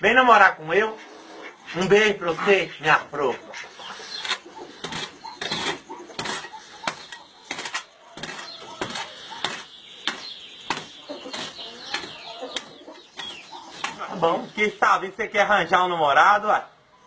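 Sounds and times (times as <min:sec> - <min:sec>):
hoe chopping and scraping dirt: 0:03.6 - 0:14.4.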